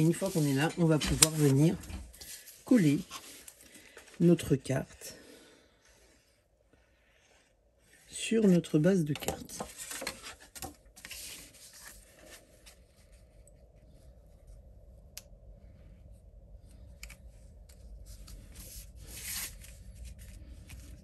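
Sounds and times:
paper rustling and rubbing: 0:00.0 - 0:03.6, 0:09.6 - 0:13.4, 0:17.7 - 0:21.0.

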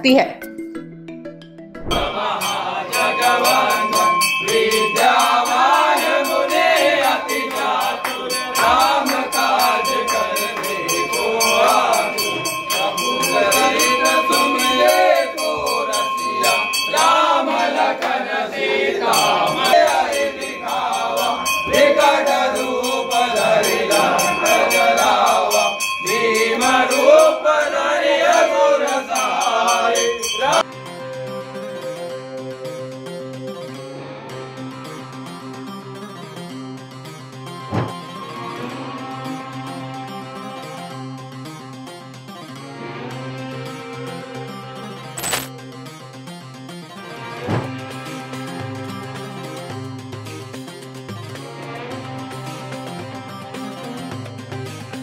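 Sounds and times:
percussion beat: 0:01.8 - 0:30.7
steady held drone: 0:01.9 - 0:30.6
voices singing: 0:01.9 - 0:30.7.

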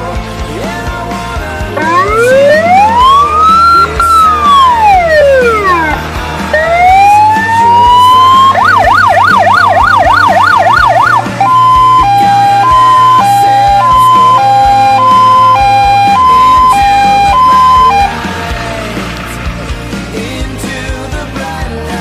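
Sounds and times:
background music with beat: 0:00.0 - 0:22.0
electronic siren: 0:01.8 - 0:18.2.

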